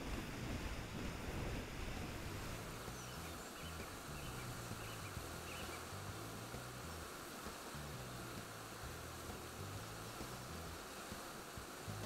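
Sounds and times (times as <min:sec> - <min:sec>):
wind rumble on microphone: 0:00.0 - 0:12.0
faint bird chirps: 0:02.9 - 0:05.9.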